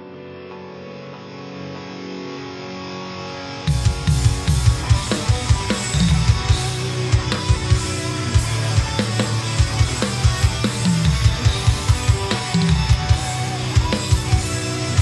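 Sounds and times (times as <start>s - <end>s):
metal backing track: 1.2s - 15.0s
drum kit played hard: 3.7s - 15.0s.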